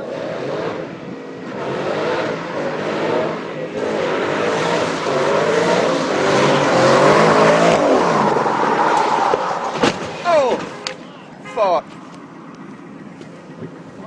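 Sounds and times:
car engine revving hard: 0.0s - 9.7s.

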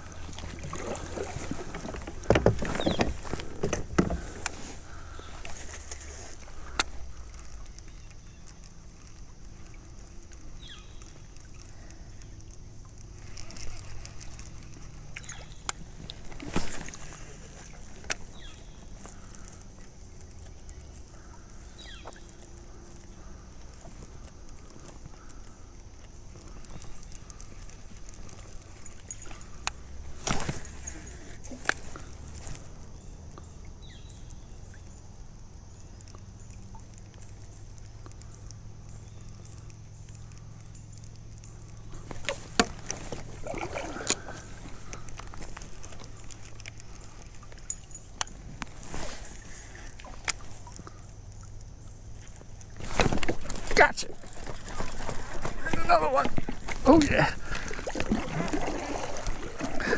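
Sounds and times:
stream rushing: 0.0s - 7.4s, 41.9s - 50.8s, 52.7s - 59.9s.

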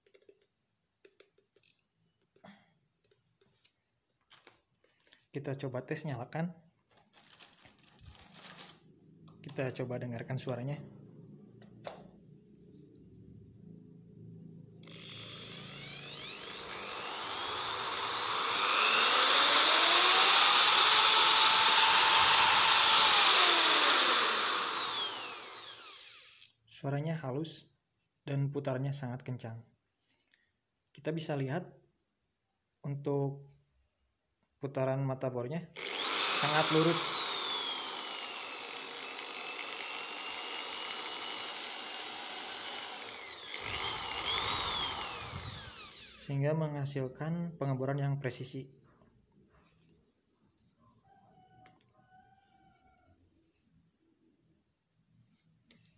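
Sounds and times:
impact drill motor whine: 14.8s - 26.5s, 35.8s - 46.3s.

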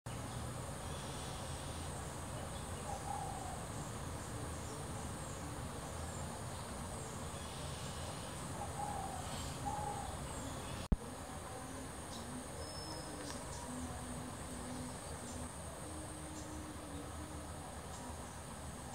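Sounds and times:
high-pitched insect drone: 0.6s - 10.9s
bird warbling calls: 0.8s - 4.0s, 7.2s - 10.9s.

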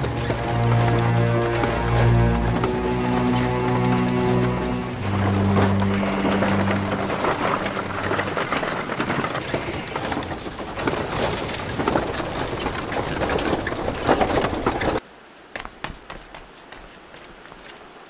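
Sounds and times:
carriage wheels and hooves on stone: 0.0s - 15.0s.

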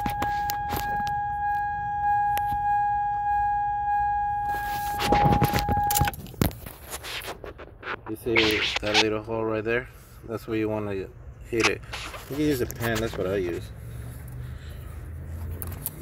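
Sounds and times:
electronic buzzer tone: 3.8s - 6.0s.

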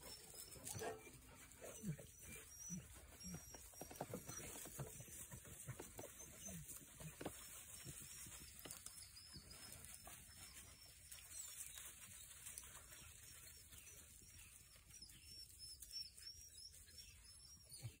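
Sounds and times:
dogs rustling through dry leaves: 6.6s - 16.8s.

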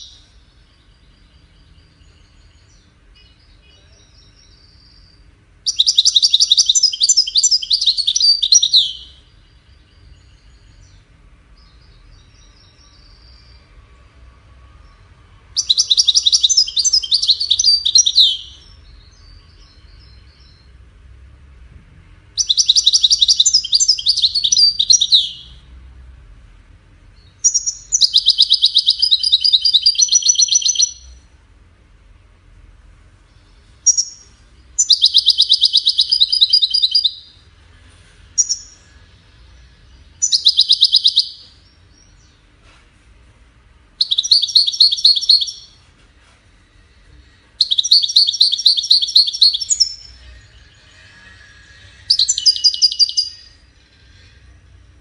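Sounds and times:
goldfinch trilling song: 0.0s - 11.0s, 15.6s - 20.7s, 22.4s - 25.6s, 27.2s - 31.2s, 33.8s - 37.4s, 38.4s - 39.0s, 39.9s - 42.4s, 44.0s - 45.8s, 47.6s - 53.7s
soft bird twittering: 0.0s - 13.8s, 14.7s - 20.8s, 22.4s - 25.7s, 27.2s - 31.3s, 33.2s - 42.7s, 44.0s - 45.8s, 46.5s - 55.0s.

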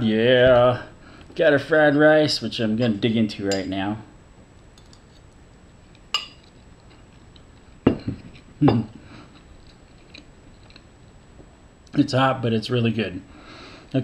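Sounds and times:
utensil clinking on bowl: 6.2s - 6.5s
quiet chewing: 9.2s - 10.9s.

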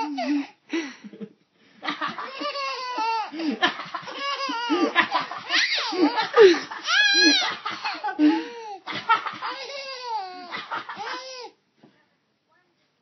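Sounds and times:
baby laughing: 0.0s - 0.4s, 1.9s - 11.6s.

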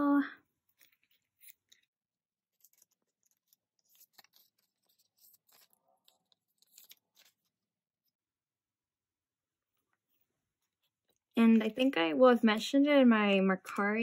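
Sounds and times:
plastic card sleeves rustling: 0.6s - 8.1s.

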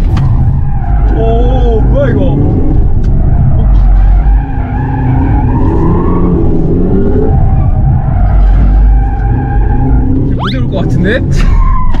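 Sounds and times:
heavy low rumble: 0.0s - 12.0s
tyres squealing and skidding: 0.0s - 12.0s.

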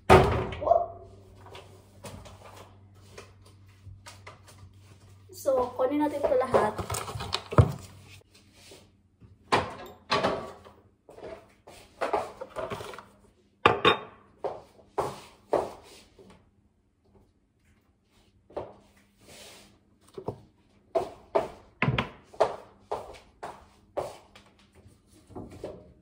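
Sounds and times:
food containers knocking and clattering: 5.5s - 8.0s, 9.4s - 13.1s.

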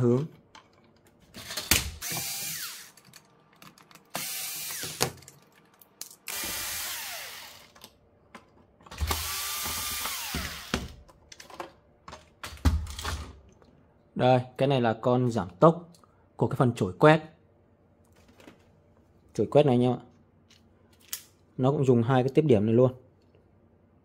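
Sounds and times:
cordless screwdriver motor whine: 2.0s - 2.9s, 4.2s - 5.0s, 6.3s - 7.7s.

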